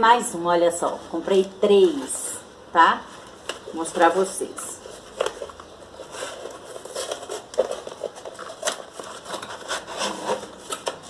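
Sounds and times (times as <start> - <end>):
cardboard packaging crinkling: 3.2 - 11.0.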